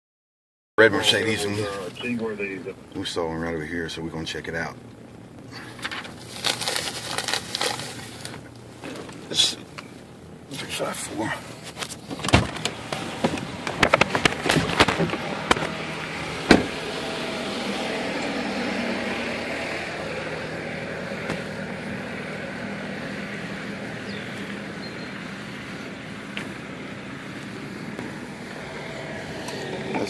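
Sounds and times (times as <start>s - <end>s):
vehicle engine idling: 0.8s - 30.0s
vehicle door shutting: 11.8s - 18.4s, 21.1s - 21.8s.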